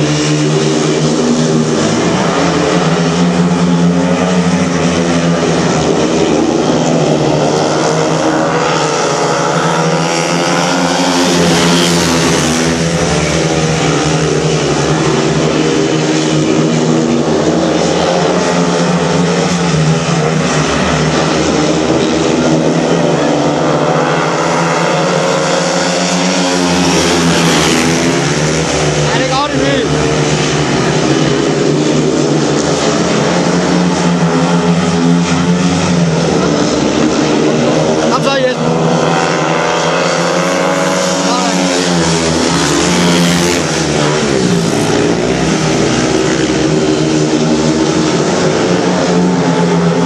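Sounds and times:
motorcycles racing: 0.0s - 50.0s.

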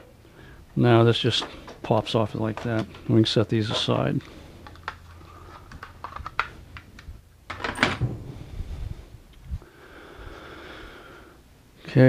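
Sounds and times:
plastic parts clicking and clattering: 1.3s - 4.0s, 4.6s - 8.0s
dull thump: 8.0s - 8.6s.

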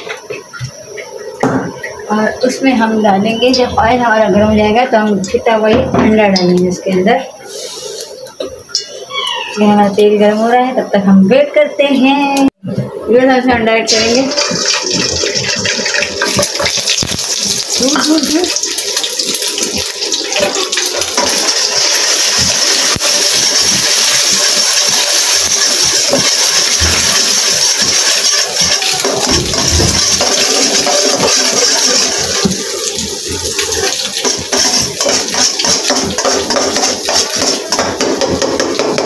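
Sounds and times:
egg sizzling in hot oil: 13.9s - 39.0s
metal spatula scraping a pan: 33.8s - 39.0s.

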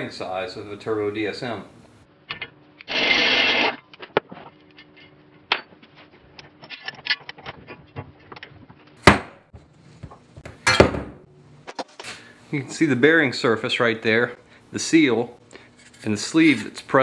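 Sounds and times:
pneumatic impact wrench: 2.9s - 3.8s.

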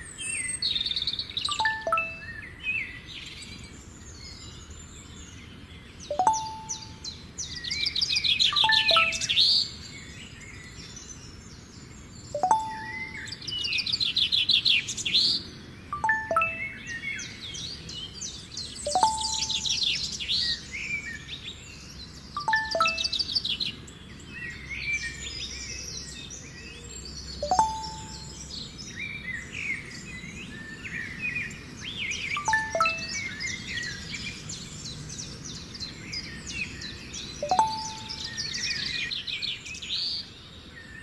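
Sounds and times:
birds chirping and singing: 0.0s - 41.0s
falling four-note chime: 1.5s - 2.3s, 6.1s - 7.1s, 8.6s - 9.4s, 12.4s - 13.3s, 16.0s - 16.9s, 18.9s - 19.9s, 22.4s - 23.2s, 27.4s - 28.4s, 32.4s - 33.3s, 37.4s - 38.4s
message alert ping: 1.5s - 2.3s, 6.1s - 7.1s, 8.6s - 9.4s, 12.4s - 13.3s, 16.0s - 16.9s, 18.9s - 19.9s, 22.4s - 23.2s, 27.4s - 28.4s, 32.4s - 33.2s, 37.4s - 38.4s.

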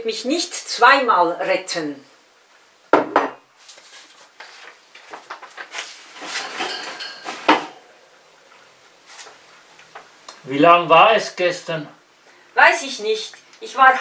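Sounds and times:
knife knocking on plate: 2.9s - 3.4s.

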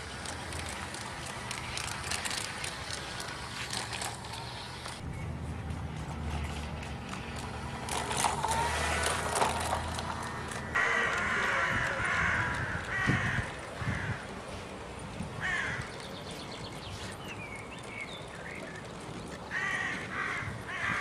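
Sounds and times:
crow cawing: 10.2s - 14.2s, 15.4s - 15.9s, 19.5s - 21.0s.

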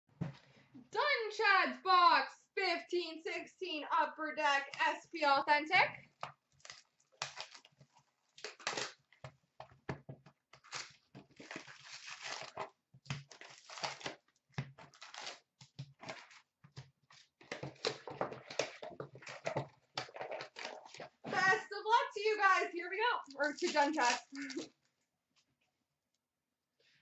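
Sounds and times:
card packs crinkling and rustling: 6.2s - 9.5s, 10.6s - 21.5s, 23.3s - 24.7s
wrapper tearing: 6.5s - 9.0s, 10.6s - 16.4s, 23.3s - 24.7s.

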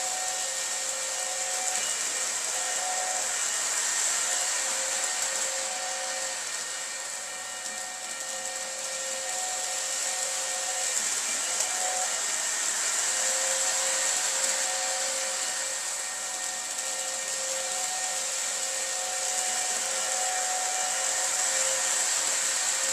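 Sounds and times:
model train running on track: 0.0s - 22.9s.

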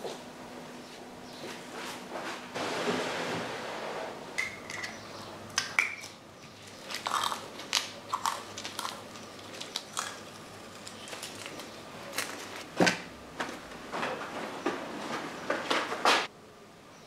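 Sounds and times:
masking tape tearing and crackling: 6.7s - 12.7s.

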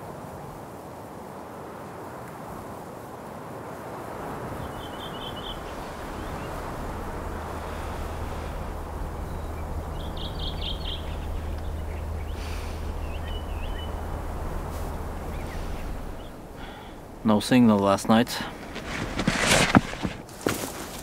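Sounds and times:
rushing outdoor background noise: 0.0s - 21.0s
low steady drone: 4.1s - 19.0s
small bird chirping: 4.6s - 17.3s.

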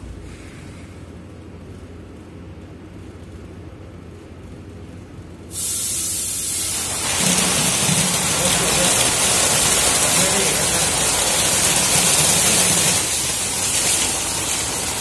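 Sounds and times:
water gushing out: 6.7s - 15.0s.

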